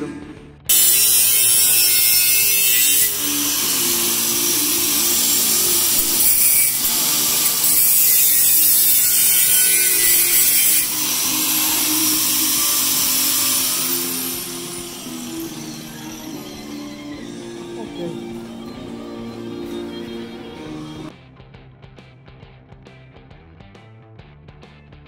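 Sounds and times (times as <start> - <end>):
angle grinder grinding steel: 0.7 - 21.1.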